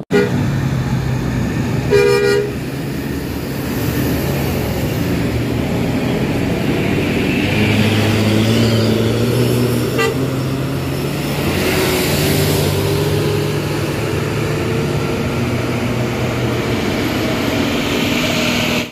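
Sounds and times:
horn toots: 0.0s - 0.5s, 1.9s - 2.7s, 9.8s - 10.4s
diesel coach engines under load: 0.0s - 18.9s.

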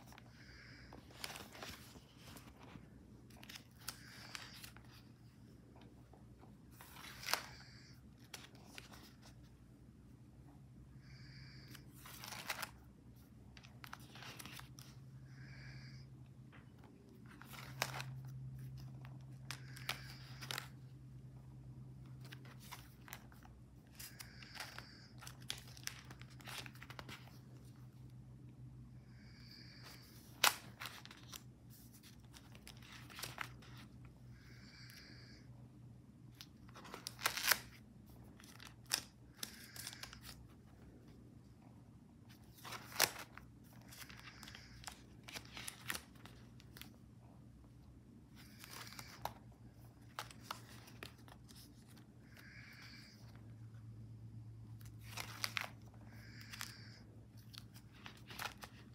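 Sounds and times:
paper rustling and crinkling: 0.0s - 6.0s, 6.6s - 9.5s, 11.7s - 15.0s, 16.8s - 20.9s, 22.0s - 28.0s, 29.8s - 34.0s, 36.4s - 41.1s, 42.3s - 47.0s, 48.3s - 53.4s, 54.7s - 58.9s
pages snapping and flapping: 1.0s - 5.0s, 6.7s - 9.4s, 11.7s - 12.8s, 13.5s - 15.0s, 17.1s - 20.8s, 22.0s - 27.7s, 29.8s - 33.9s, 36.4s - 40.5s, 42.3s - 47.0s, 54.8s - 58.9s.

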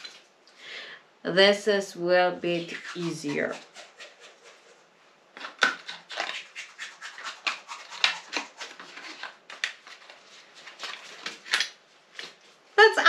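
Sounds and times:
packaging rustling and crinkling: 8.2s - 12.6s.

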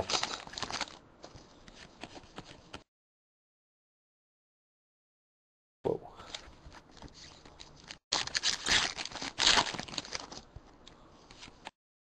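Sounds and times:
cards rustling: 0.0s - 2.8s, 6.3s - 11.7s
foil wrapper crinkling: 7.4s - 10.5s.

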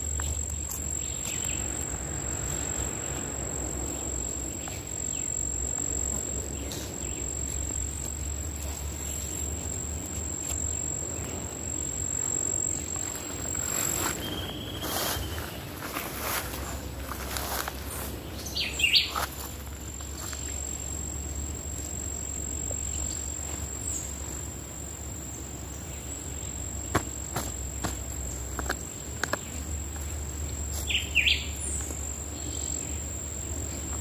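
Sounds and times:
insect trilling: 0.0s - 34.0s
bird whistle: 14.2s - 15.4s.

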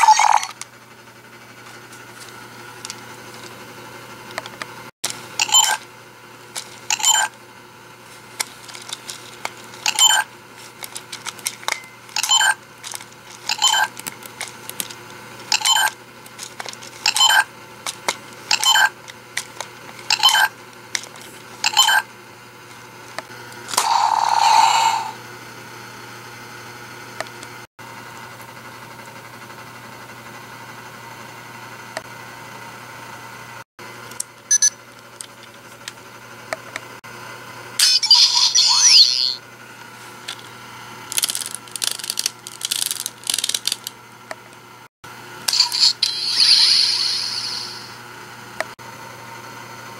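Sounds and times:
toy watch electronic beeps: 5.4s - 5.8s, 6.9s - 7.3s, 9.9s - 10.3s, 12.2s - 12.6s, 13.5s - 13.9s, 15.5s - 15.9s, 18.5s - 18.9s, 20.1s - 20.5s, 21.7s - 22.0s, 34.5s - 34.7s, 37.8s - 39.4s, 45.6s - 47.9s.

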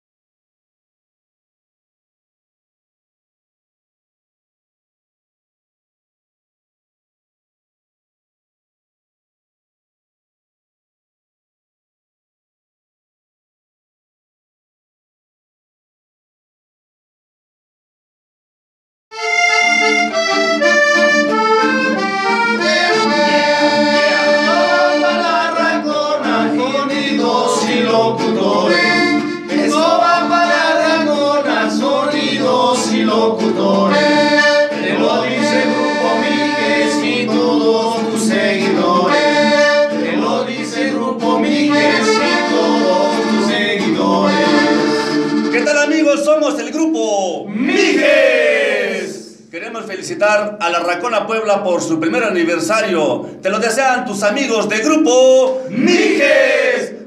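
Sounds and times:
button accordion: 19.1s - 46.0s
men singing: 22.6s - 45.3s, 47.6s - 49.3s, 55.5s - 57.0s.

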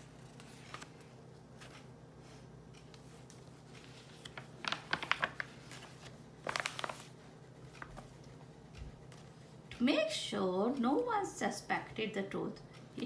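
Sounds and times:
paper pages rustling: 0.0s - 2.0s, 2.7s - 9.8s.

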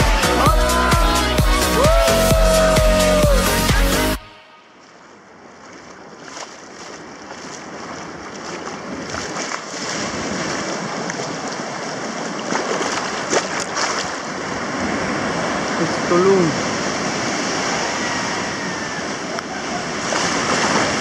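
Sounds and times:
waves breaking on sandy shore: 4.6s - 21.0s.

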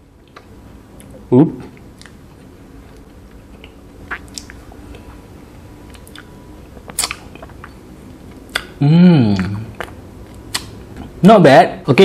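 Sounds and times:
wet lip smacks and clicks: 3.0s - 4.6s, 5.9s - 6.3s, 6.9s - 7.8s, 8.4s - 8.8s, 9.4s - 10.8s
chewing and swallowing: 5.8s - 8.8s, 9.4s - 11.1s.

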